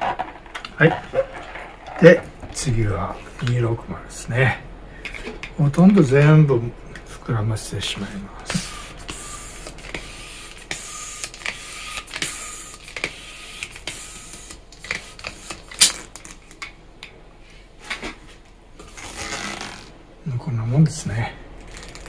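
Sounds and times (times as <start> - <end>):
handling noises: 0.0 - 3.6
air rushing through balloon pump: 8.4 - 16.1.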